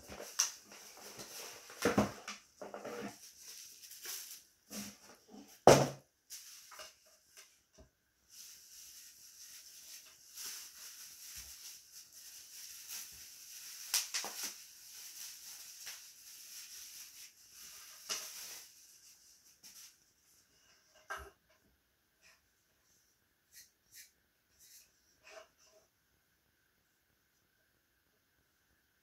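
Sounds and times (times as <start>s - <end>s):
bubble wrap crinkling: 0.0s - 2.4s, 3.0s - 5.1s, 8.3s - 20.0s.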